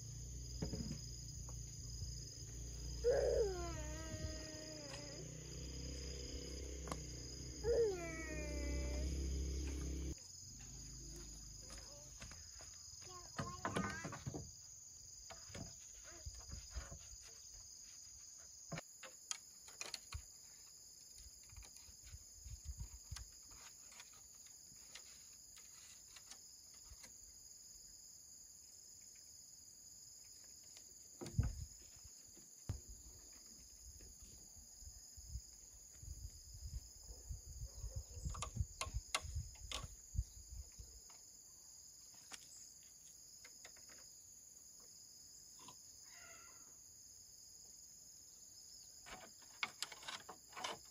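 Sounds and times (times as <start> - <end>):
high-pitched insect chorus: 0.0 - 50.9.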